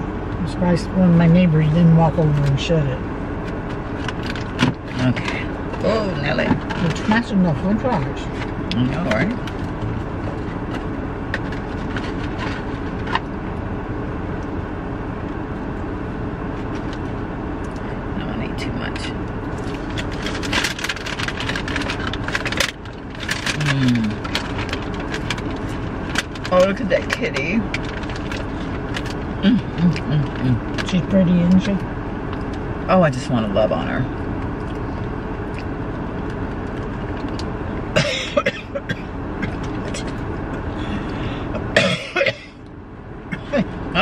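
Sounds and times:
car driving rumble: 0.0 - 44.0
sharp clicks and crackles: 19.6 - 29.2
person coughing: 38.0 - 39.6, 41.6 - 42.6, 43.3 - 43.7.

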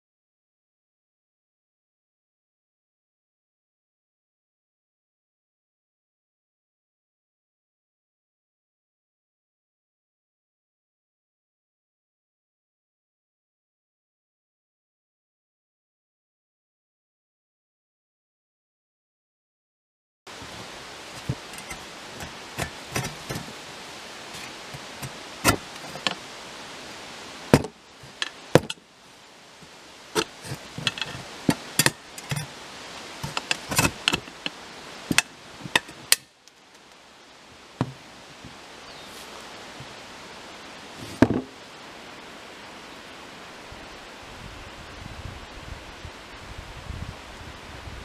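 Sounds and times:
hacksaw cutting metal: 21.2 - 23.6, 24.3 - 26.2, 27.6 - 28.8, 30.2 - 32.5, 33.2 - 36.2
blade knocking against metal: 27.6 - 28.8, 30.2 - 32.4.

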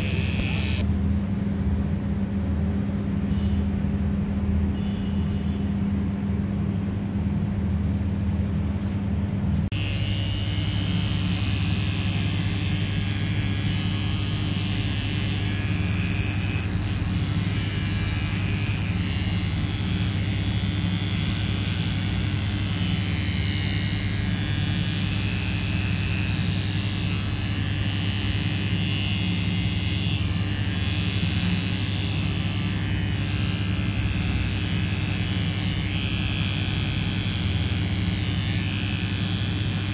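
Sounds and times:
pet trimmer buzzing: 0.0 - 0.9, 9.7 - 39.9.

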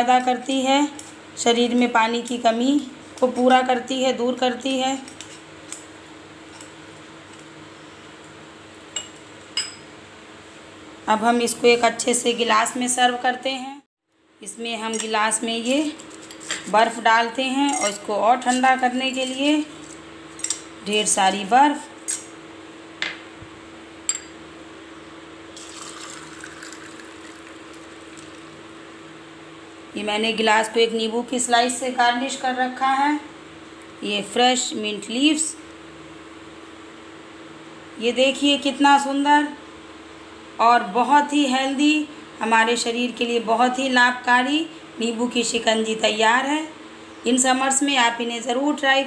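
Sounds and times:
faint steady hum: 0.0 - 49.0
liquid poured over ice: 25.6 - 28.6.

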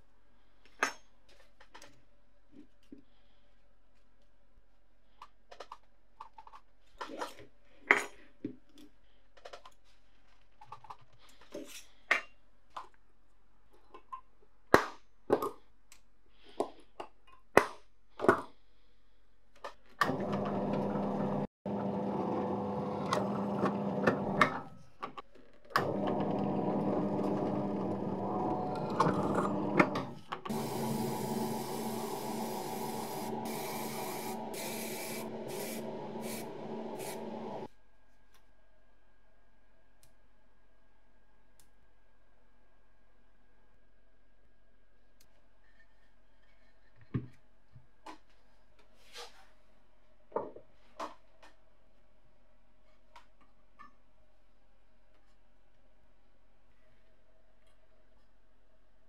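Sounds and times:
power tool running: 25.8 - 37.7
steady hissing: 30.5 - 37.7.

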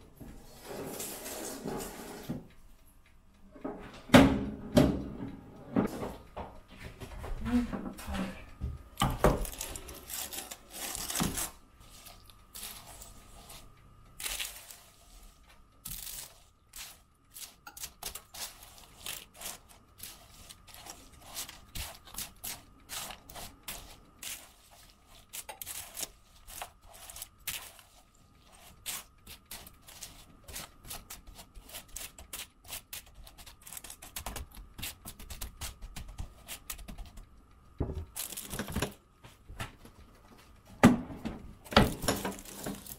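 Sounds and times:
objects clicking and rustling by hand: 38.0 - 39.0, 41.6 - 42.9.

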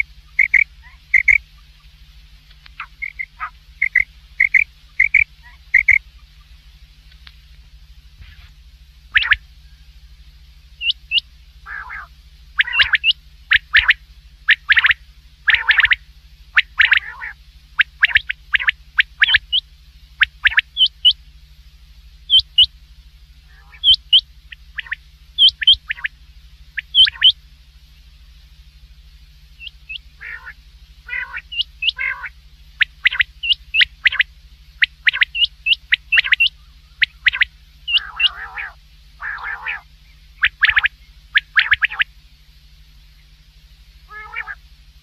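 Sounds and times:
quail calling: 0.0 - 1.8, 2.6 - 6.6, 9.1 - 10.0, 10.8 - 21.2, 22.3 - 22.7, 23.5 - 27.4, 29.6 - 42.1, 44.0 - 44.6
faint low hum: 0.0 - 45.0.

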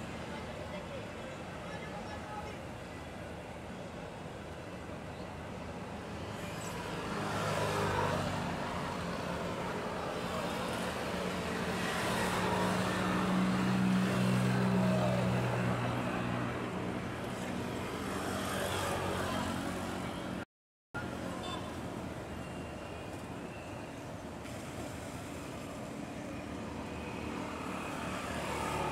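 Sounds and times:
busy harbour din: 0.0 - 20.4, 21.0 - 28.9.

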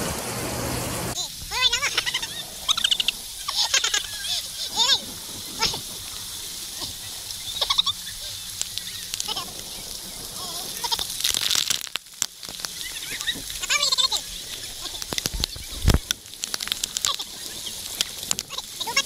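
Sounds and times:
moving water hiss: 0.0 - 19.0
people squealing and laughing: 1.5 - 5.9, 12.8 - 14.2.

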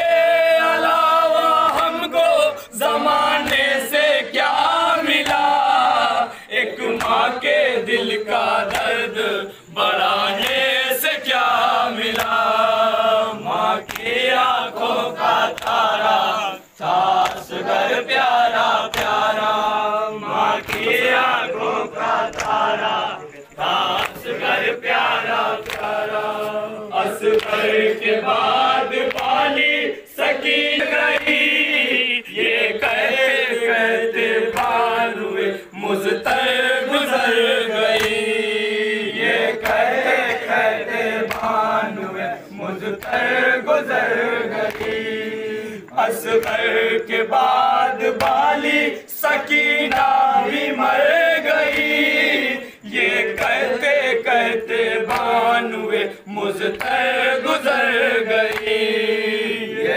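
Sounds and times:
men chanting in chorus: 0.0 - 59.9
chest-beating slaps: 13.9 - 14.2, 18.9 - 19.3, 20.6 - 21.1, 22.3 - 22.7, 25.6 - 26.6, 41.2 - 41.6.

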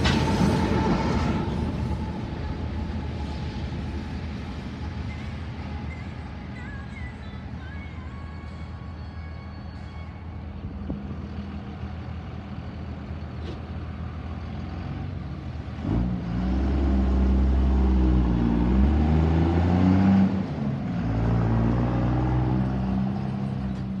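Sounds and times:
low steady engine hum: 0.0 - 16.4
truck engines accelerating past: 10.6 - 24.0.

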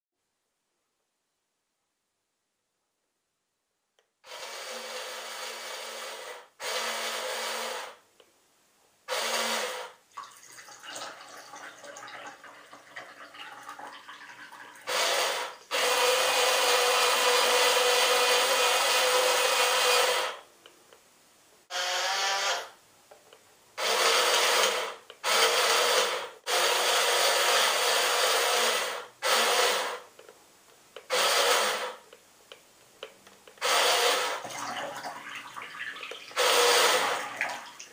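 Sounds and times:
small electric motors whirring: 21.7 - 22.7, 36.4 - 37.2.

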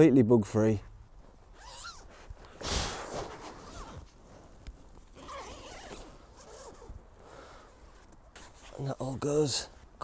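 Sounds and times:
nylon fabric rustling: 1.4 - 6.9
zip-like rasp: 1.5 - 4.1, 5.2 - 6.9.

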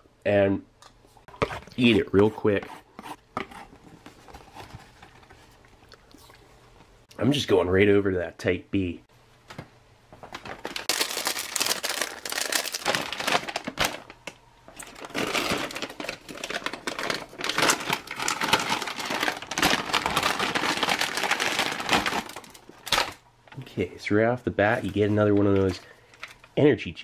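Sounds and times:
plastic pouch crinkling: 10.2 - 23.2.

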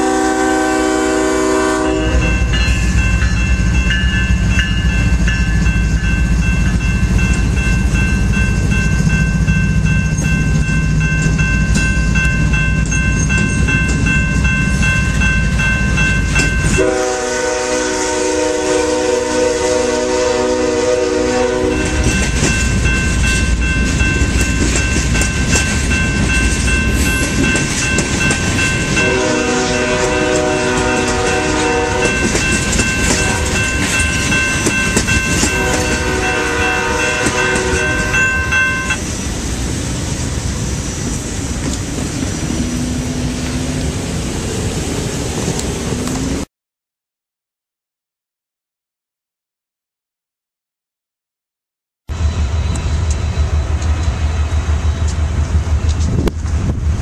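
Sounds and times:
train horn blasts: 0.0 - 2.6, 16.7 - 22.3, 28.8 - 34.1, 35.0 - 38.9
diesel locomotives rumbling: 0.0 - 46.5, 52.1 - 57.0
train wheels clattering: 21.7 - 39.1.

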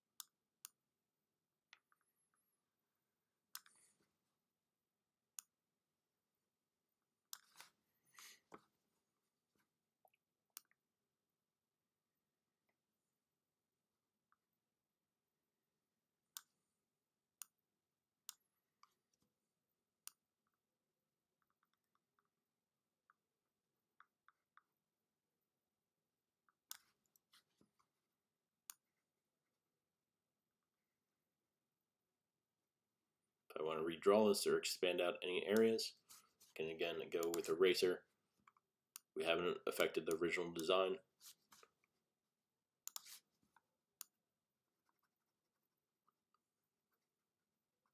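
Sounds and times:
computer mouse clicks: 0.2 - 0.8, 3.5 - 3.9, 10.1 - 10.8, 37.2 - 37.6, 42.8 - 43.2
faint computer mouse clicks: 42.8 - 43.2.

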